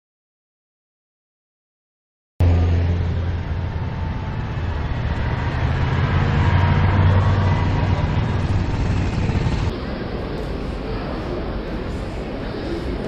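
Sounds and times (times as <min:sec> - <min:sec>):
low vehicle rumble: 0:02.4 - 0:09.7.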